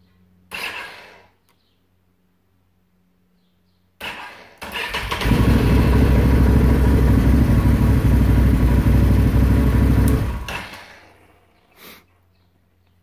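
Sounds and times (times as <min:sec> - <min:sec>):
electric starter cranking: 0:04.0 - 0:11.2
engine idling: 0:04.9 - 0:11.3.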